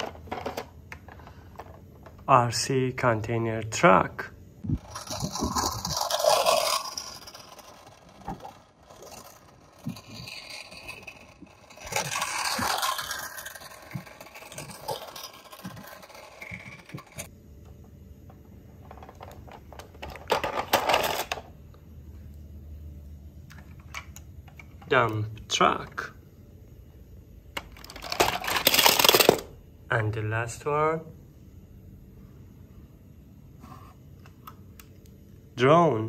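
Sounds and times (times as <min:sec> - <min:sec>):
plastic toys clattering: 0:00.0 - 0:02.3, 0:04.8 - 0:17.3, 0:18.8 - 0:21.5, 0:27.6 - 0:29.5
scraping and rustling: 0:04.8 - 0:17.3.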